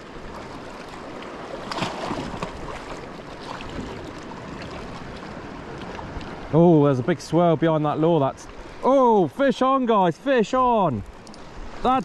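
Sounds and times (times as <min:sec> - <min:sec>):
sea water washing against rocks: 0:00.0 - 0:06.6.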